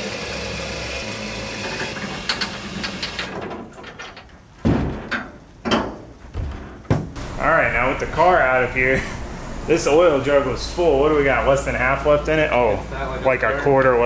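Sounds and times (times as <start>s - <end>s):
heavy doors clunking shut: 2.6s - 10.1s
power liftgate motor running: 7.2s - 14.0s.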